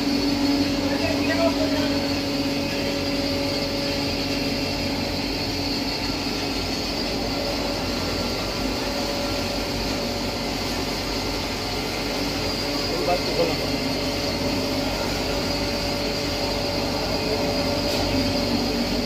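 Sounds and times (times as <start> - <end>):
hammer mill running: 0.0 - 19.0.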